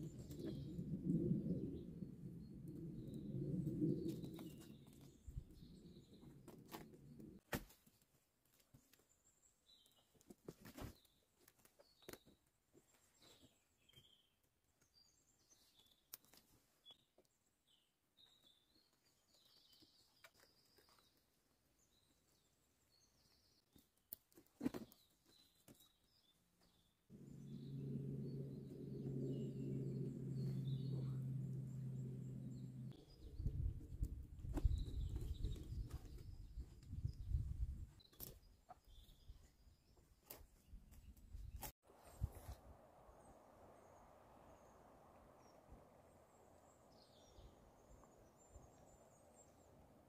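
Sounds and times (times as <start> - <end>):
small birds chirping: 24.7 - 50.0
steady low hum: 27.1 - 33.0.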